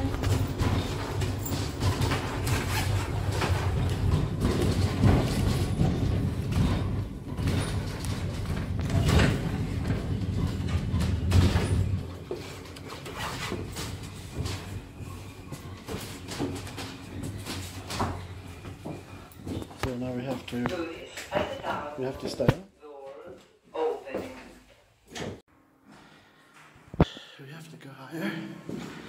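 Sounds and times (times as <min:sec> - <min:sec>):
funicular car rumbling on rails: 0:00.0 - 0:12.3.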